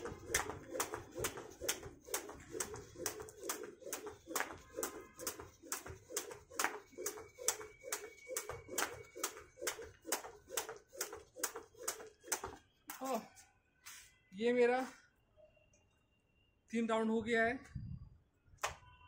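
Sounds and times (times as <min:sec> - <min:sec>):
jump rope slapping concrete: 0:00.0 - 0:13.0.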